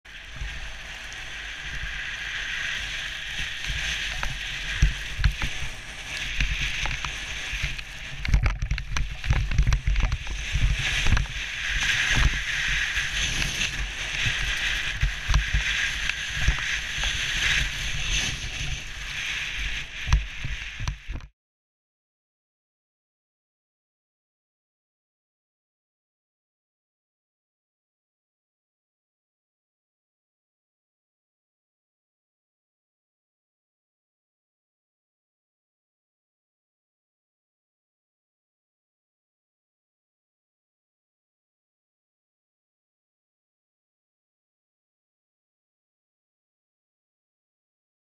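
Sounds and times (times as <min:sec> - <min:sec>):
skis scraping over snow: 0:00.1 - 0:21.3
wind buffeting camera: 0:00.1 - 0:21.3.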